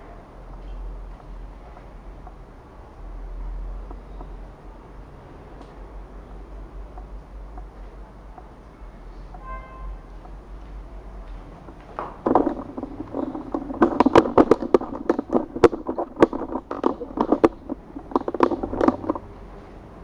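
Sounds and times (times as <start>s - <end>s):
tripod and camera handling clatter: 11.8s - 19.3s.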